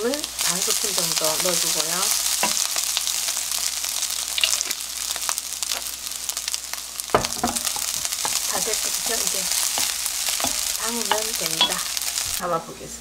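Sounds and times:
rice sizzling in frying pan: 0.0s - 12.7s.

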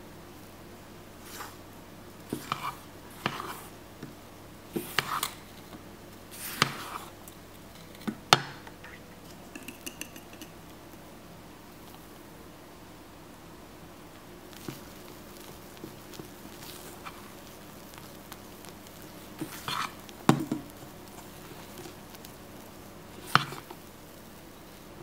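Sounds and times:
spatula scraping metal bowl: 2.3s - 3.7s, 4.8s - 5.4s.

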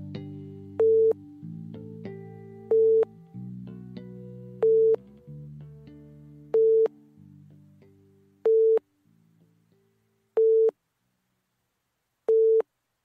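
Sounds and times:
soft synthesizer music: 0.0s - 10.0s.

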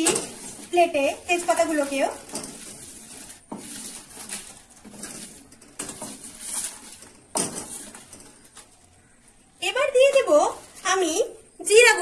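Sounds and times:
wooden spatula scraping metal pan: 0.0s - 8.5s.

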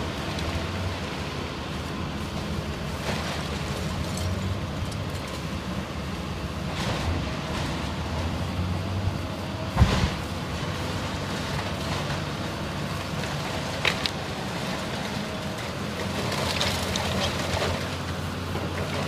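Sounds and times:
excavator diesel engine: 0.0s - 19.0s
debris crunching and clattering: 9.8s - 18.0s.

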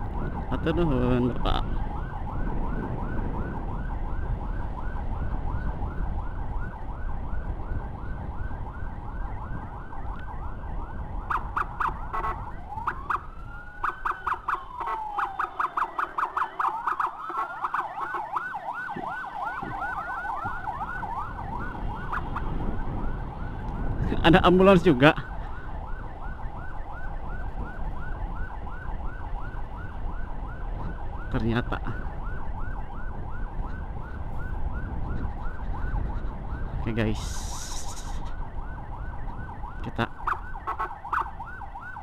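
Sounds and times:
siren blasts: 0.0s - 42.0s
siren wail: 0.0s - 42.0s
wind rumble: 0.0s - 42.0s
electronic siren yelping: 8.0s - 23.9s, 25.1s - 42.0s.

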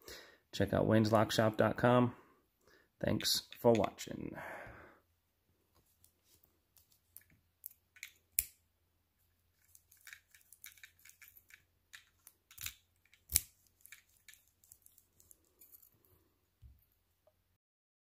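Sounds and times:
key and lock metallic clicks: 9.9s - 15.9s.

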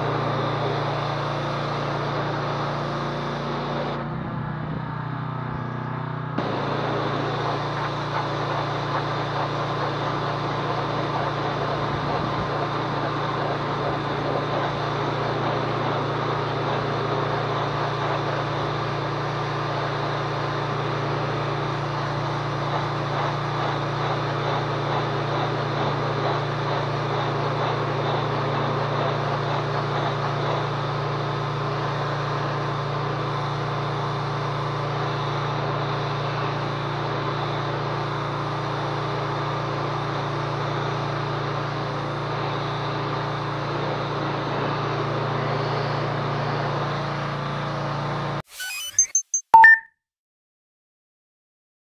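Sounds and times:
pressure washer engine running: 0.0s - 48.4s
water jet hissing: 6.4s - 17.3s.

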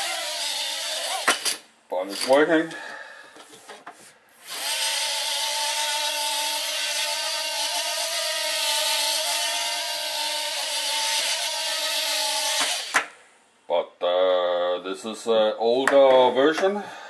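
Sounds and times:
quadcopter motors whining: 0.0s - 1.4s, 4.3s - 13.0s.

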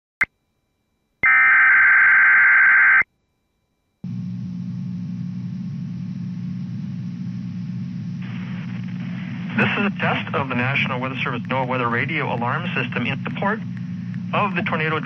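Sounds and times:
steady low hum: 3.2s - 15.0s.

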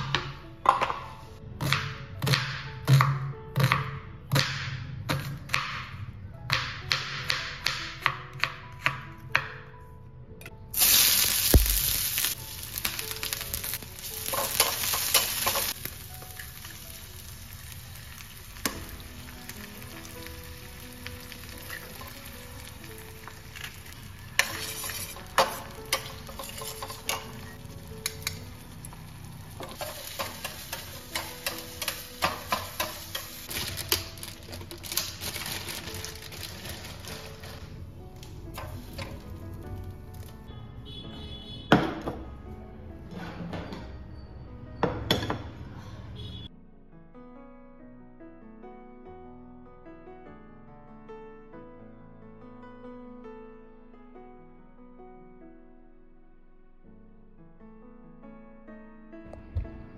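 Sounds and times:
food sizzling in hot oil: 10.7s - 37.4s
metal spatula scraping pan: 24.4s - 28.4s.

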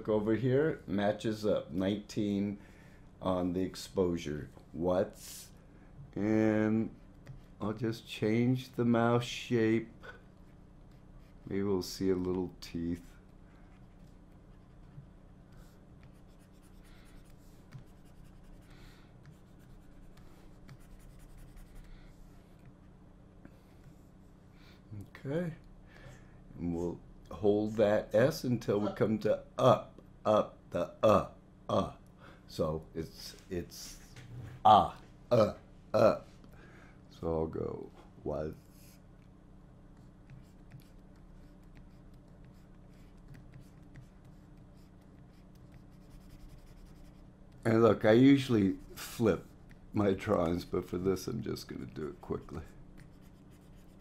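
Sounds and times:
stylus scratching on tablet: 10.4s - 12.1s, 12.7s - 22.8s, 39.9s - 54.0s.

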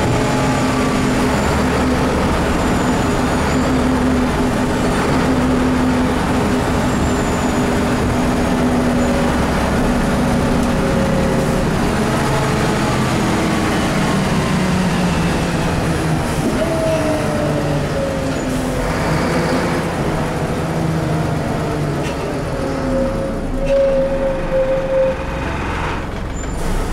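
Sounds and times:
bus diesel engine running: 0.0s - 26.9s
whining tone: 22.9s - 26.8s.

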